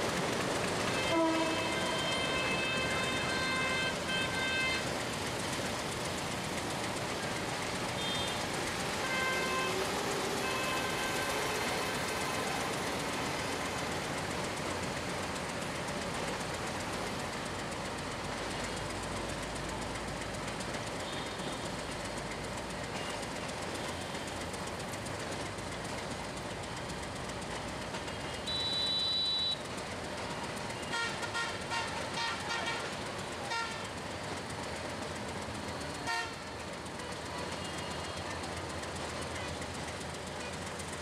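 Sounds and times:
train rumbling: 0.0 - 41.0
train horn blast: 0.8 - 4.9, 8.0 - 12.4, 28.4 - 29.6, 30.9 - 33.8, 36.0 - 36.4.

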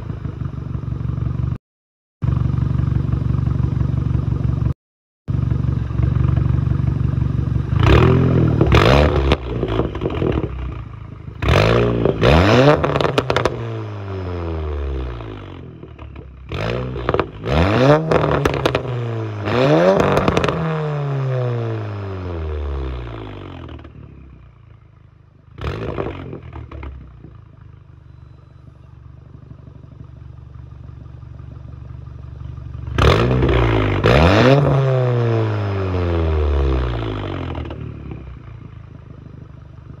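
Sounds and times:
car engine idling: 0.0 - 1.6, 2.2 - 4.7, 5.3 - 13.6, 22.3 - 25.6, 26.2 - 34.0, 36.1 - 40.0
car engine revving: 7.7 - 23.9, 25.6 - 27.1, 32.8 - 40.0.

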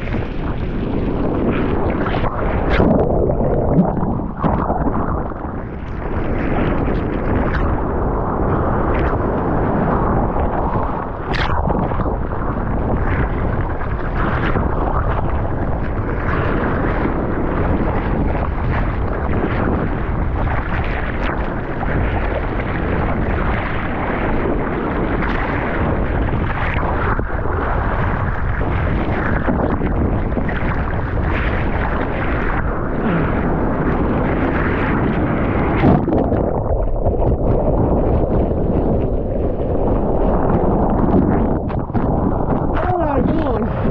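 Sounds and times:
muffled underwater sound: 0.0 - 43.9
wind buffeting microphone: 0.0 - 43.9.

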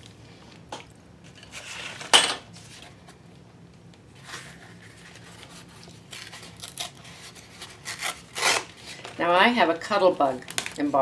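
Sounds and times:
paper rustling and crinkling: 4.2 - 9.1.

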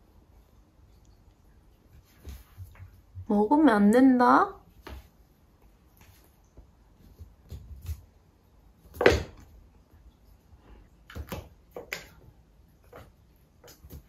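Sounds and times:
cat paws scuffing on wooden floor: 1.7 - 3.3, 4.6 - 9.5.

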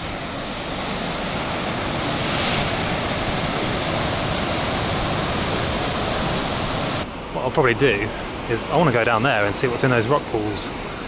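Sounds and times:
surf breaking on rocks: 0.0 - 7.0.

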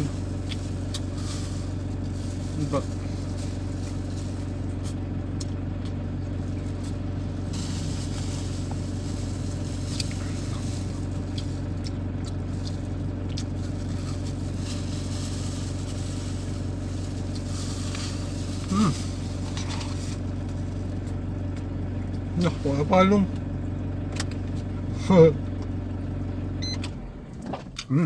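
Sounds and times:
van engine hum inside cabin: 0.0 - 28.0
person chewing: 0.2 - 1.2, 4.8 - 6.0, 9.8 - 14.2.

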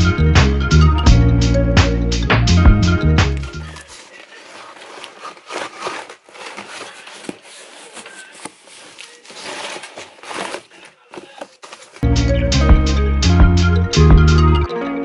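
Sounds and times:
cardboard tearing and rustling: 3.6 - 12.0.

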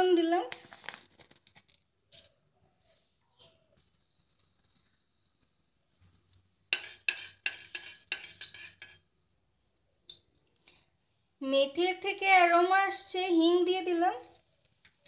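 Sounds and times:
seeds sizzling in hot oil: 3.8 - 11.4, 13.6 - 15.0
metal spatula scraping pan: 6.7 - 9.1.

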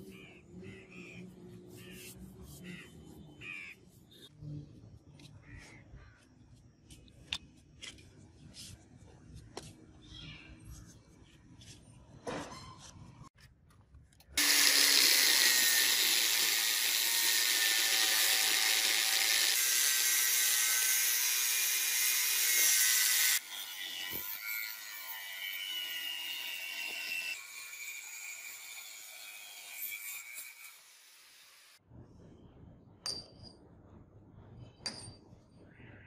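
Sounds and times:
angle grinder cutting metal pipe: 14.4 - 31.8.

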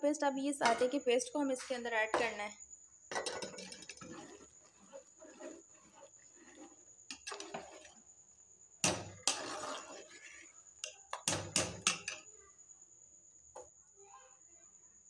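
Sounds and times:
ladle scraping metal pot: 0.6 - 1.0, 1.6 - 2.4, 3.1 - 8.1, 8.8 - 12.2
ladle clinking and clanking: 3.1 - 8.0, 8.8 - 12.3.

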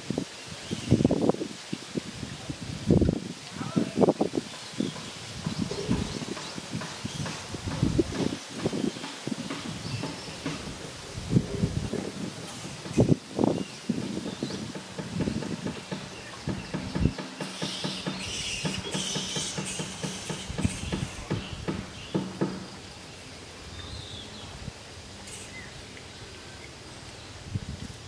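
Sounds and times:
low thumps and knocks: 4.5 - 13.3, 13.9 - 22.8
flying foxes screeching: 17.2 - 22.2.

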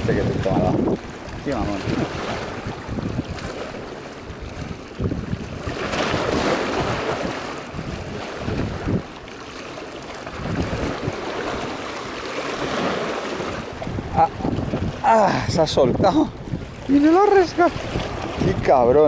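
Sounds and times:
wind buffeting microphone: 0.0 - 9.3, 10.2 - 19.0
small waves washing on rocks: 0.0 - 19.0.

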